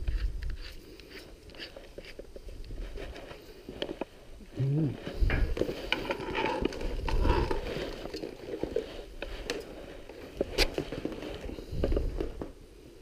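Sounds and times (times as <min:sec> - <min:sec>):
cord rustling and thumps: 0:05.1 - 0:12.6.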